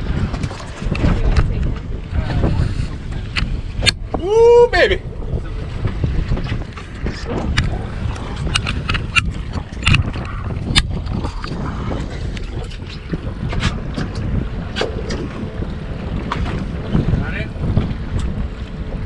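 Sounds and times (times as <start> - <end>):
wind buffeting microphone: 0.0 - 19.0
sharp clicks and knocks: 6.4 - 11.6.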